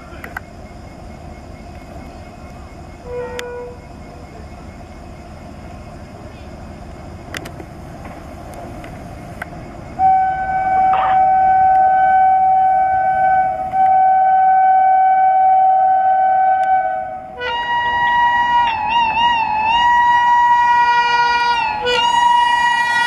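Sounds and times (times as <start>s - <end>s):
low train rumble: 0.0s - 23.0s
locomotive air horn: 3.0s - 3.8s, 10.0s - 23.0s.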